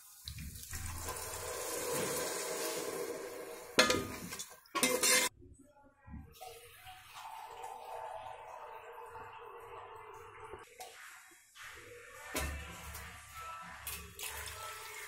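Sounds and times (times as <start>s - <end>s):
liquid pouring into metal pot: 0.2s - 5.3s, 6.3s - 10.6s.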